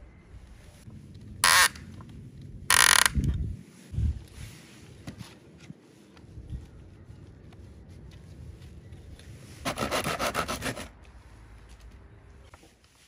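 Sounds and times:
harsh rasping noises: 0:09.6 - 0:11.0.

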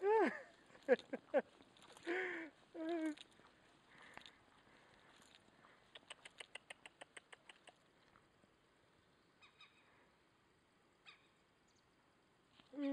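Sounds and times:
faint ticks: 0:02.8 - 0:08.3.

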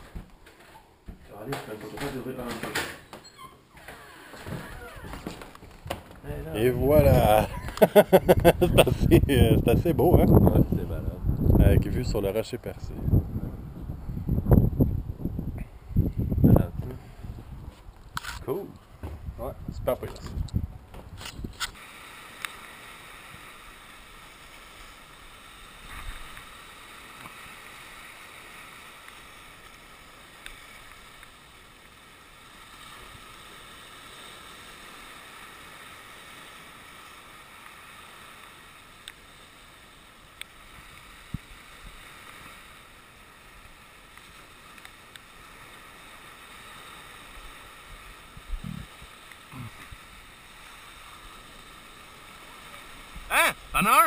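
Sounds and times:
waves breaking over rocks: 0:03.7 - 0:12.7, 0:20.9 - 0:54.0
short low bumps: 0:18.9 - 0:21.6
faint clicks: 0:43.6 - 0:45.3.

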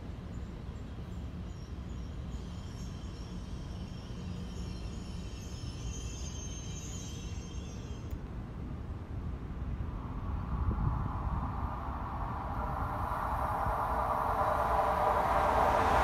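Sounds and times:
train rumbling: 0:01.4 - 0:16.0
faint high electric whine: 0:09.5 - 0:16.0.

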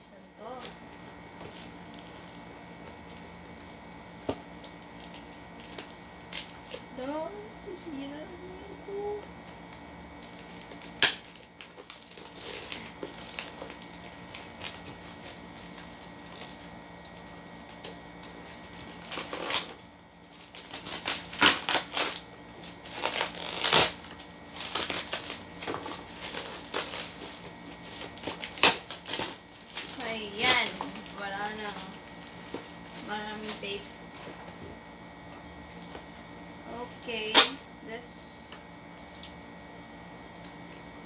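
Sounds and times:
plastic wrap crinkling: 0:00.4 - 0:07.1, 0:08.2 - 0:34.6
parcel wrapping torn open: 0:09.6 - 0:34.2.

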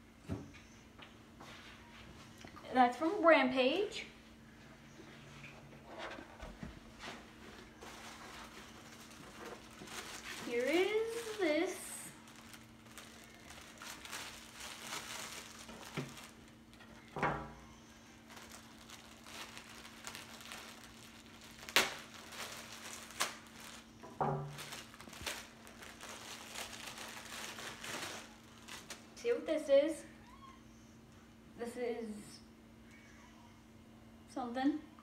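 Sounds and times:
plastic bag crinkling: 0:07.3 - 0:29.2.

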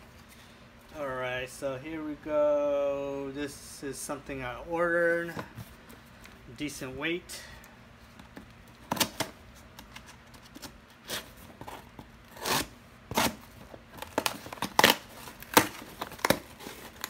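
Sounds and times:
cardboard box being torn open: 0:14.0 - 0:17.0.

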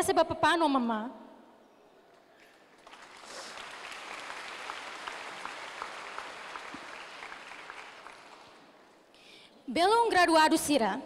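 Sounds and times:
audience applauding: 0:02.4 - 0:09.0.

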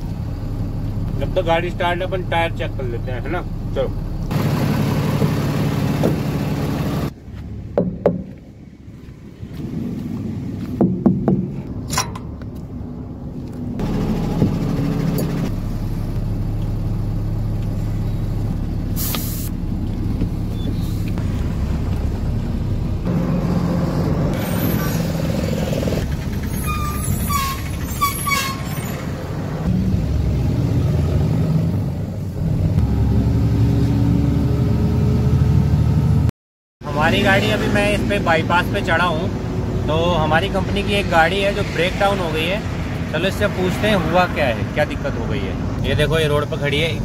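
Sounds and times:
truck diesel engine running: 0:00.0 - 0:11.2, 0:12.8 - 0:29.8
rod knocking on tyre: 0:07.8 - 0:08.4, 0:10.8 - 0:12.2
air brake hiss: 0:19.0 - 0:19.5
squeaks: 0:26.1 - 0:29.2.

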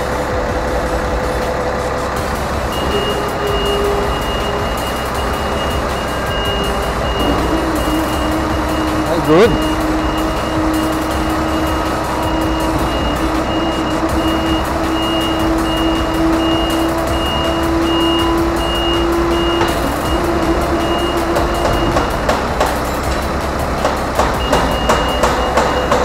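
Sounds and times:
truck engine rumble: 0:00.0 - 0:26.0
warning beeper: 0:02.7 - 0:22.1.

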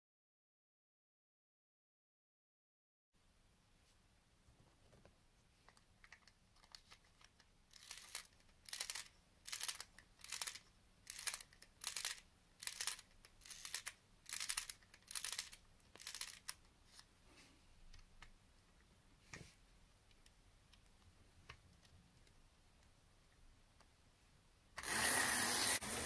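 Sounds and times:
wind-up motor key ratcheting: 0:07.7 - 0:16.6.

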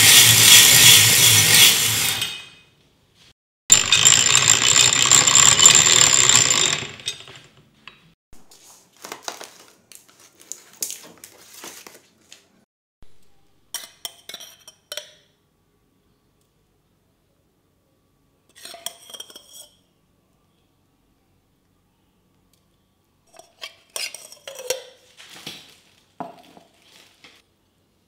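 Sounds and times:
ice shaver rasping through ice: 0:00.0 - 0:02.4, 0:03.7 - 0:07.3.

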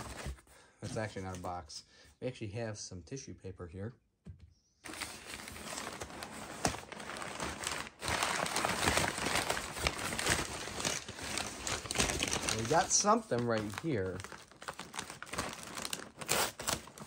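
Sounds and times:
packing paper crinkling: 0:04.9 - 0:17.0.

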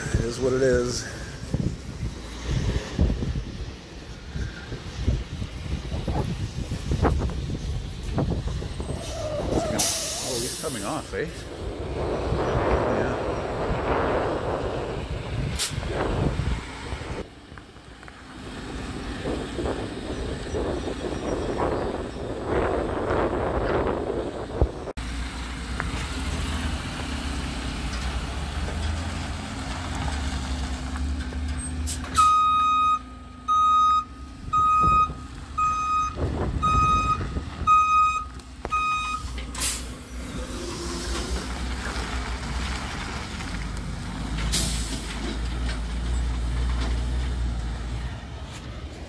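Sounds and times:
diesel engine running: 0:00.0 - 0:49.0
air brake hisses: 0:09.8 - 0:10.9
reverse alarm beeps: 0:32.2 - 0:39.3.

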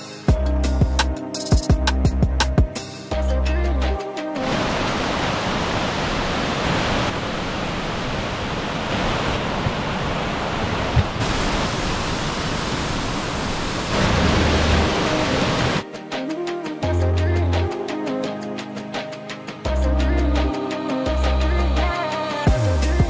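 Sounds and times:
background music: 0:00.0 - 0:05.2, 0:14.0 - 0:23.0
waterfall rushing: 0:04.4 - 0:15.9.

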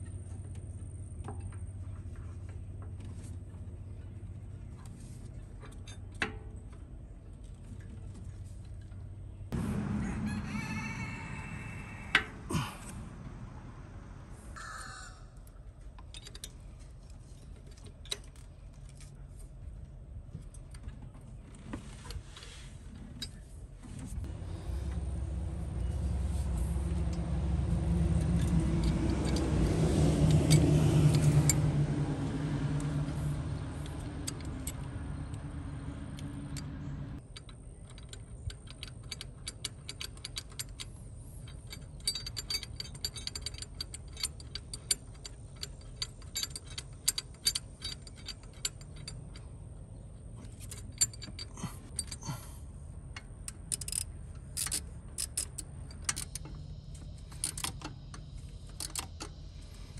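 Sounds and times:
low engine hum: 0:00.0 - 0:59.9
metallic clicks of hand tools: 0:36.2 - 0:49.5, 0:50.4 - 0:59.4.

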